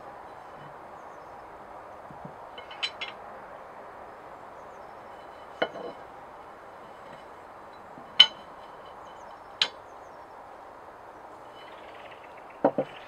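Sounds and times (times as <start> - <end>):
steel bars clinking together: 2.1 - 3.3, 5.0 - 9.9.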